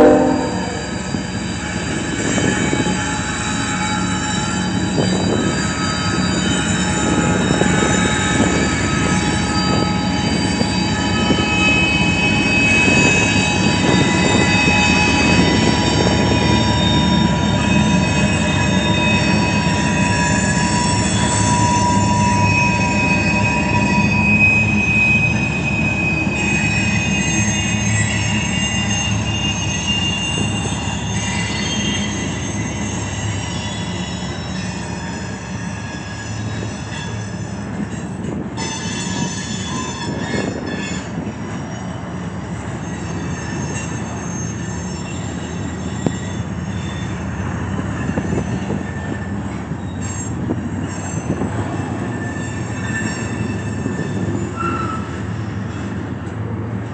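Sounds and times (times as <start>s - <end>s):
freight train rumble: 0.0s - 56.9s
train wheels squealing: 0.0s - 56.9s.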